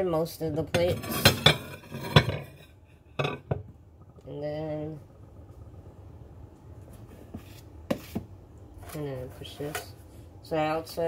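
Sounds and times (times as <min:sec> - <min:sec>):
dishes and containers clattering: 0:00.8 - 0:03.7.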